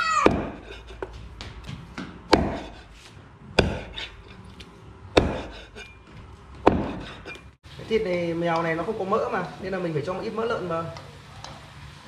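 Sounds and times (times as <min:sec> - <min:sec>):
cleaver chopping meat and bone: 0:00.2 - 0:00.8, 0:02.0 - 0:02.8, 0:03.5 - 0:04.2, 0:05.1 - 0:06.0, 0:06.6 - 0:07.4.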